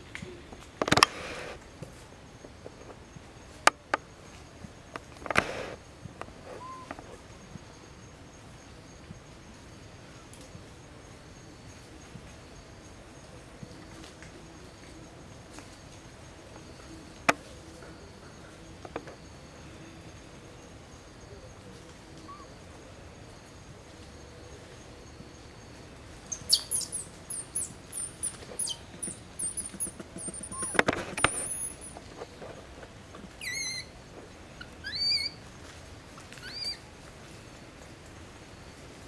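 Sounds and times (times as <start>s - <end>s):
small birds chirping: 6.5s - 7.2s, 26.2s - 34.0s, 34.6s - 35.4s, 36.4s - 36.9s
very high bird chirps: 6.6s - 6.9s, 26.3s - 32.0s, 33.4s - 33.9s, 34.8s - 35.4s
whistled bird calls: 6.6s - 7.0s, 26.3s - 32.0s, 33.4s - 33.9s, 34.8s - 35.4s, 36.4s - 36.8s
sharp clicks: 28.0s - 32.0s.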